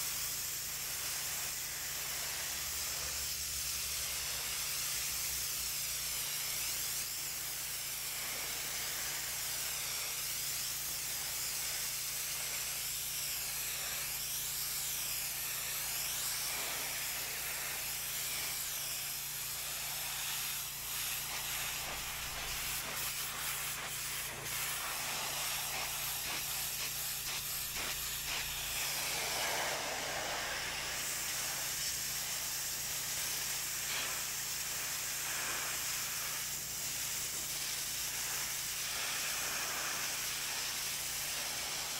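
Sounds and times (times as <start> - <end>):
pressure washer spraying water: 0.0 - 41.9.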